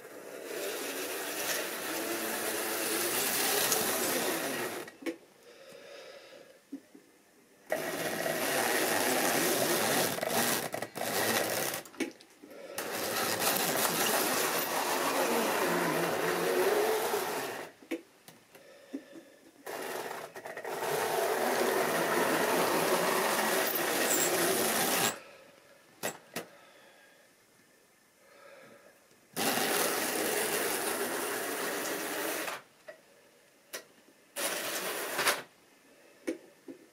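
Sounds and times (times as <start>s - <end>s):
model train motor whirring: 0.0s - 4.9s, 7.7s - 11.8s, 12.8s - 17.8s, 19.7s - 25.2s, 29.4s - 32.6s.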